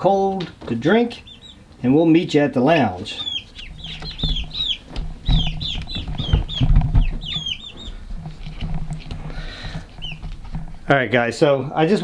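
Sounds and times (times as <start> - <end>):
chicks peeping: 0.0 - 10.9
low thumps and rustling: 3.3 - 11.3.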